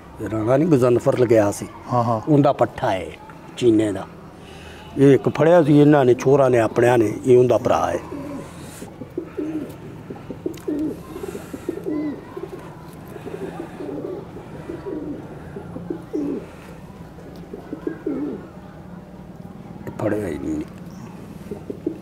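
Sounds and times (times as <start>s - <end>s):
pigeons cooing: 5.5s - 18.8s, 20.1s - 22.0s.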